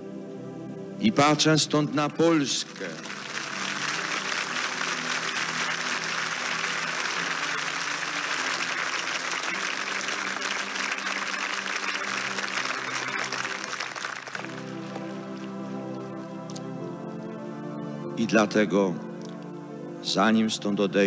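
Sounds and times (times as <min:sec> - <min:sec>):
large crowd applauding: 0:02.3 - 0:15.7.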